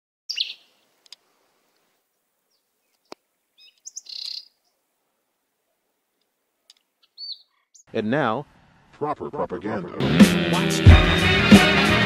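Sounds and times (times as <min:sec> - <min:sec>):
small birds chirping: 0:00.3 - 0:05.0, 0:05.6 - 0:08.0.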